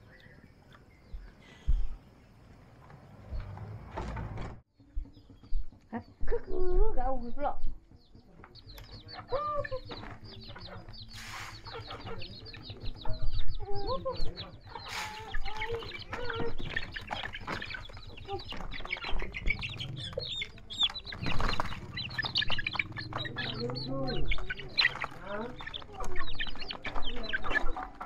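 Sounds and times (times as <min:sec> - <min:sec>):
chicks peeping: 0:05.0 - 0:28.0
chickens clucking: 0:07.8 - 0:28.0.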